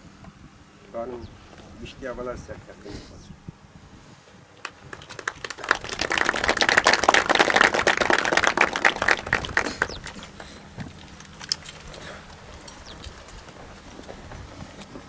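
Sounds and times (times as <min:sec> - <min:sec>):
crowd applauding: 0:04.6 - 0:10.4.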